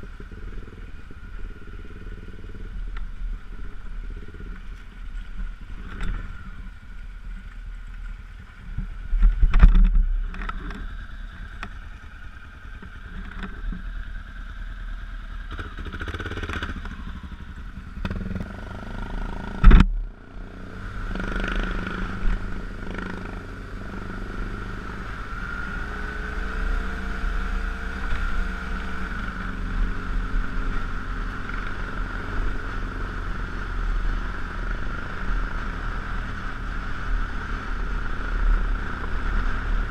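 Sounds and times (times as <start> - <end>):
motorcycle engine: 0.0 - 39.9
wind and road noise: 0.0 - 39.9
sharp thump: 19.6 - 20.0.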